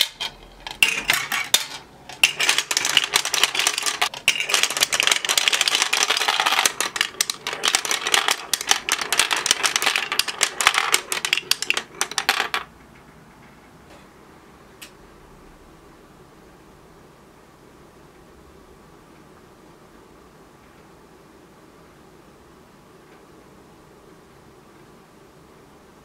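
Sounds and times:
marbles clattering down plastic run: 0.0 - 12.7.

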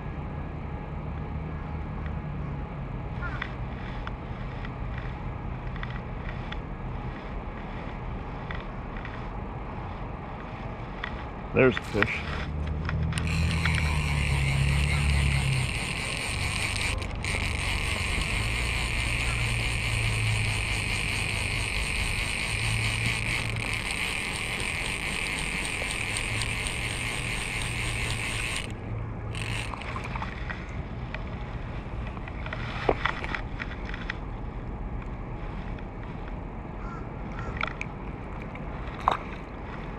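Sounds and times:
rasping handling noise: 3.3 - 34.2
quiet rustling: 3.7 - 28.8.

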